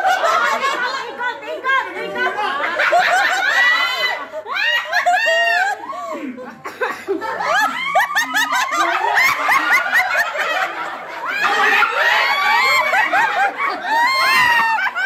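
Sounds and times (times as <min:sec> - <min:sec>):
group of people laughing: 0:00.0 - 0:15.0
high-pitched shrieks of laughter: 0:02.9 - 0:06.1, 0:07.4 - 0:15.0.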